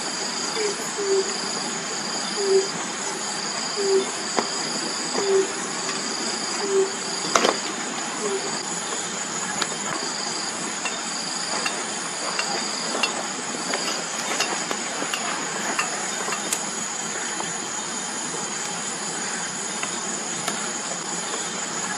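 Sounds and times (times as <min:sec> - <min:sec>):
night insects chirring: 0:00.0 - 0:21.9
campfire crackling and popping: 0:08.8 - 0:21.8.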